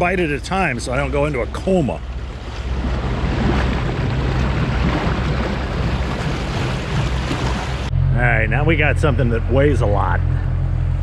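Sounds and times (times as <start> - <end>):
water rushing along boat hull: 0.0 - 7.9
outboard motor humming: 0.0 - 11.0.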